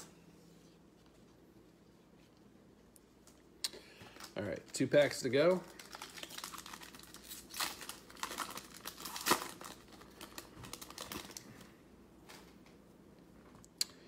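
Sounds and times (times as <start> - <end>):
card pack wrapper crinkling: 4.2 - 11.4.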